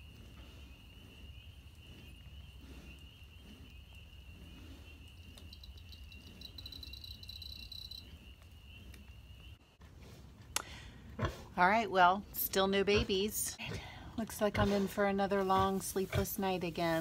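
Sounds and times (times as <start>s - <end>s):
insect pulsing trill: 5.0s - 8.4s
cricket drone: 5.0s - 9.5s.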